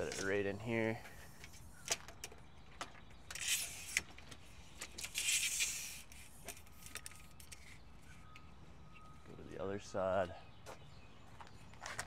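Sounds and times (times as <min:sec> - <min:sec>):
metal leg scraping and rattling: 0:00.0 - 0:07.8.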